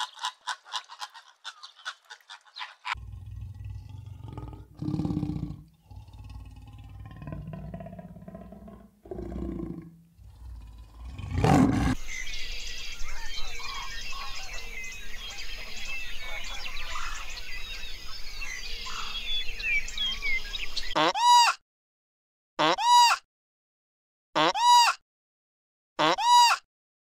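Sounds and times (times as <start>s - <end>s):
small birds chirping: 0.0s - 8.5s, 9.8s - 21.1s
big cat calling in low pulses: 3.0s - 12.0s.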